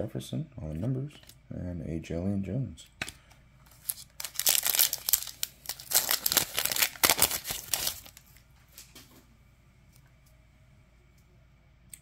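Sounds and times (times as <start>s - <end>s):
foil wrapper crinkling and tearing: 3.0s - 8.4s.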